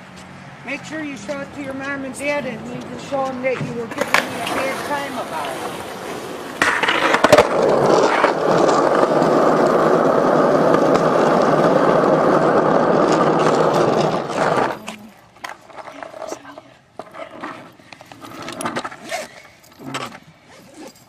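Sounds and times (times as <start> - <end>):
skateboard wheels rolling on asphalt: 0.0 - 20.3
skateboard clacks: 2.8 - 16.4.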